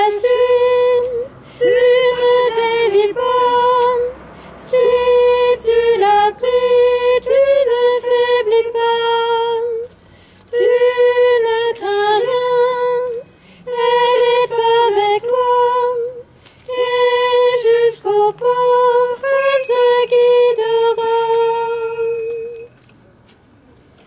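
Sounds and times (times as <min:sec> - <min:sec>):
woman singing a hymn unaccompanied: 0:00.0 - 0:22.7
singer breathing: 0:01.4 - 0:01.7, 0:04.2 - 0:04.6, 0:10.0 - 0:10.5, 0:13.3 - 0:13.7.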